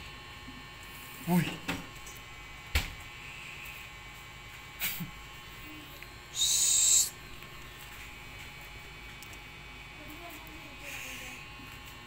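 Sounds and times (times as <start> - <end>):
hamster screeching: 6.3 - 7.2.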